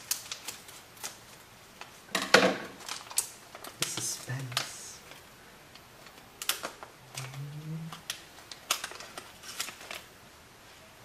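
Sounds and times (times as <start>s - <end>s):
packaging being handled: 0.0s - 2.0s, 2.8s - 10.2s
person humming: 7.0s - 8.1s.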